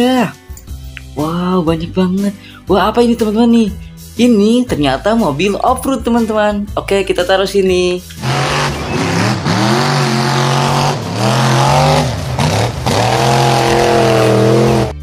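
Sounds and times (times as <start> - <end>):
truck engine revving: 8.0 - 15.0
tyres churning mud: 8.2 - 15.0.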